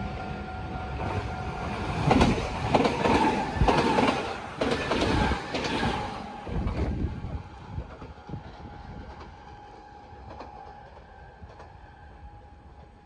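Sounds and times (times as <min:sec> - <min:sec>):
train running rumble: 0:00.0 - 0:13.0.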